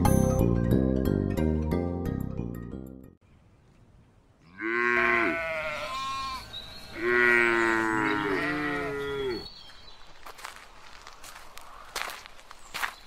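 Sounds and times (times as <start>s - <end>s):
livestock calls falling in pitch: 4.5s - 6.4s.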